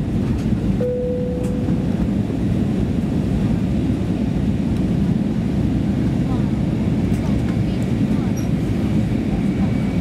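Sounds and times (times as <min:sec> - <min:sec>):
aircraft cabin engine rumble: 0:00.0 - 0:10.0
soft cabin chime tone: 0:00.8 - 0:02.0.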